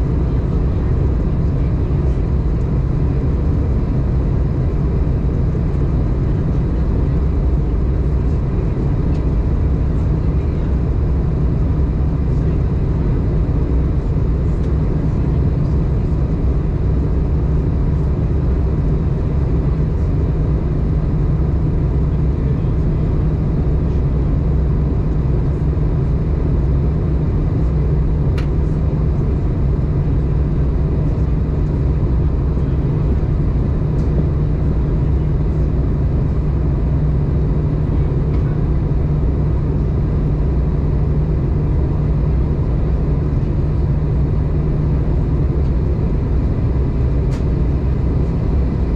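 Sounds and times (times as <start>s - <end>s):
airplane cabin roar: 0.0s - 48.9s.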